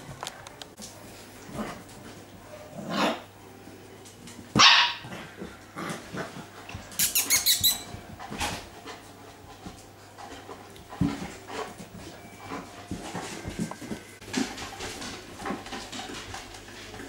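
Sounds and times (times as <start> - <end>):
puppies barking and yipping: 6.9 - 8.0.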